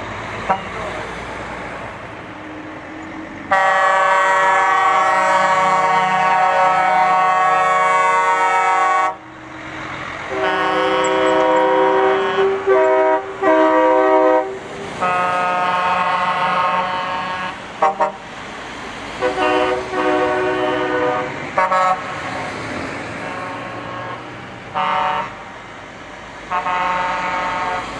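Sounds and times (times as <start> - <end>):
diesel engines and tyres rumbling: 0.0 - 27.9
truck air horn blasts: 0.4 - 1.0, 3.5 - 9.2, 10.3 - 18.3, 19.2 - 22.2, 23.2 - 25.5, 26.5 - 27.9.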